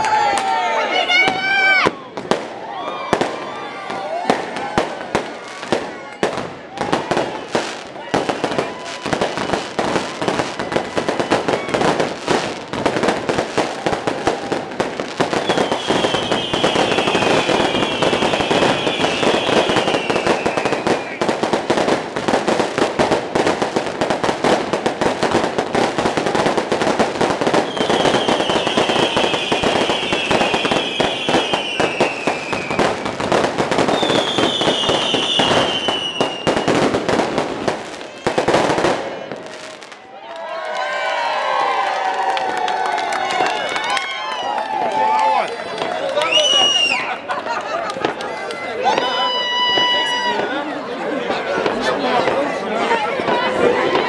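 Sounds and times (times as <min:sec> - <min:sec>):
fireworks crackling and popping: 0:00.0 - 0:54.0
firework whistles falling in pitch: 0:15.4 - 0:21.4, 0:27.5 - 0:33.2, 0:33.8 - 0:36.8, 0:46.2 - 0:47.1, 0:48.9 - 0:50.5.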